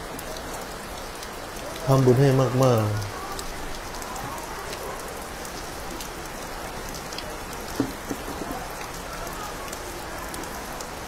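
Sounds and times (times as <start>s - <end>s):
steady rain falling: 0.0s - 11.0s
low knocks: 7.7s - 8.6s.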